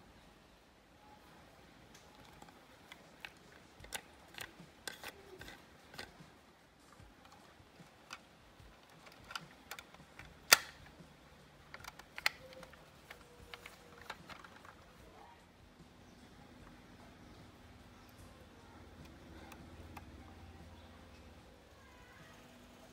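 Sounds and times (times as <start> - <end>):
clicks of handling toy parts: 1.9 - 6.3, 7.0 - 11.0, 11.7 - 14.9.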